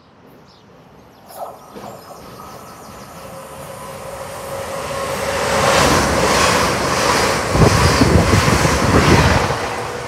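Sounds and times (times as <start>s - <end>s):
train passing: 0.1s - 10.0s
steady tone: 1.3s - 6.4s.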